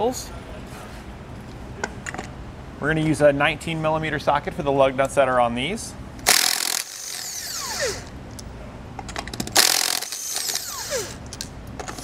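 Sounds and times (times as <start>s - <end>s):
impact wrench hammering: 6.2s - 8.1s, 9.2s - 11.2s.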